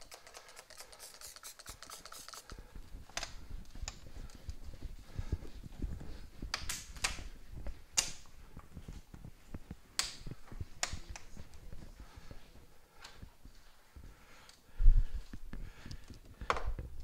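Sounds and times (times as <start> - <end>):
cloth wiping whiteboard: 0.8 - 2.6.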